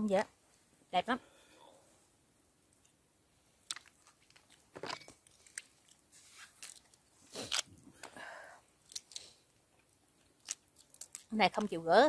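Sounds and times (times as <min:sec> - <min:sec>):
chewing: 0:03.6 - 0:07.7, 0:08.8 - 0:11.4
crab shell cracking: 0:03.6 - 0:07.8, 0:08.8 - 0:11.4.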